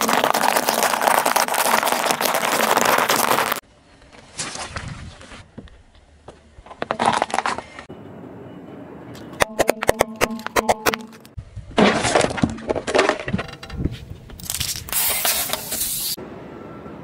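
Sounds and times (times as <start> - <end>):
tyre crunching small objects: 0.0 - 3.6, 6.7 - 7.8.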